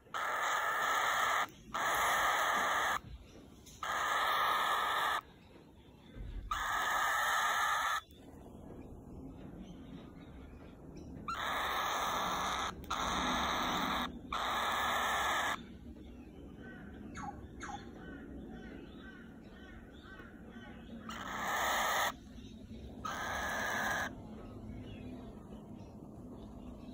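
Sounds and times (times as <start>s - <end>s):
cockatiel chick hissing calls: 0.2s - 3.0s, 3.8s - 5.2s, 6.5s - 8.0s, 11.4s - 15.6s, 21.2s - 22.2s, 23.1s - 24.1s.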